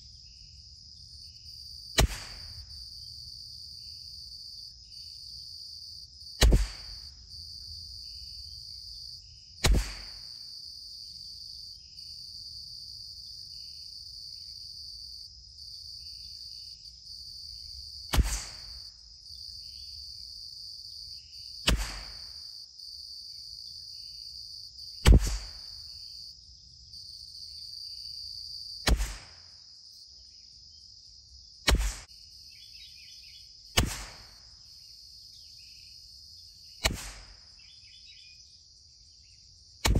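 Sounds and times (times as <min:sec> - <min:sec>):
insects buzzing: 0:00.0 - 0:39.9
rifle shots: 0:02.0 - 0:02.5, 0:06.4 - 0:07.0, 0:09.6 - 0:10.2, 0:18.1 - 0:18.7, 0:21.7 - 0:22.3, 0:33.8 - 0:34.3, 0:36.8 - 0:37.3.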